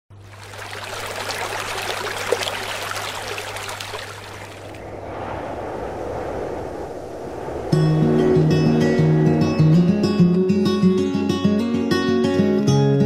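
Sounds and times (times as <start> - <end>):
fountain water splashing: 0.1 - 4.8
low water rush: 0.1 - 9.4.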